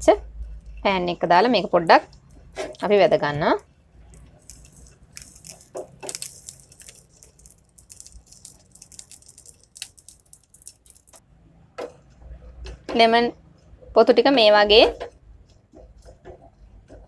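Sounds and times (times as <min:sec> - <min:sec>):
peel crackling in a hot pan: 0:04.2 - 0:11.2.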